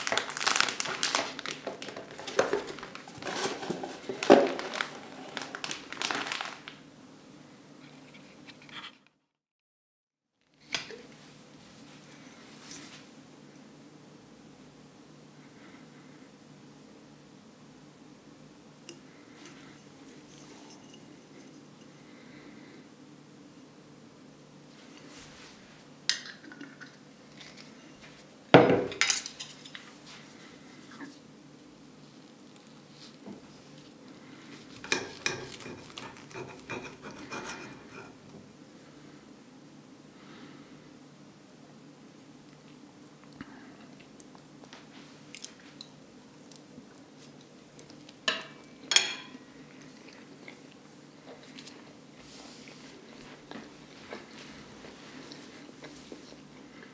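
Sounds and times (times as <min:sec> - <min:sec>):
plastic film crinkling: 0:00.0 - 0:06.8, 0:32.1 - 0:36.7
cutlery clinks: 0:48.3 - 0:49.4.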